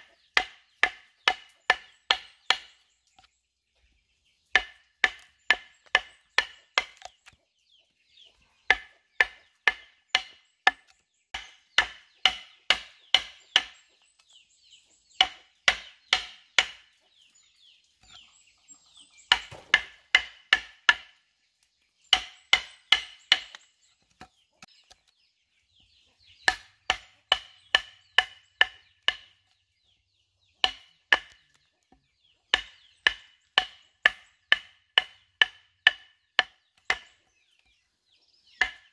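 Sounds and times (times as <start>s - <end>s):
machete chopping wood: 0.1s - 3.3s, 4.5s - 7.4s, 8.7s - 13.8s, 15.2s - 16.9s, 19.3s - 21.2s, 22.1s - 25.0s, 26.4s - 29.4s, 30.6s - 31.7s, 32.5s - 37.2s, 38.5s - 38.9s.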